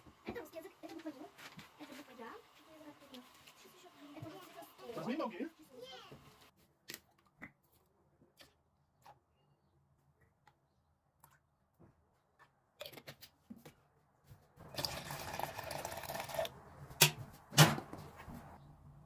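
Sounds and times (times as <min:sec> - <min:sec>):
liquid pouring into plastic jug: 0:14.6 - 0:16.5.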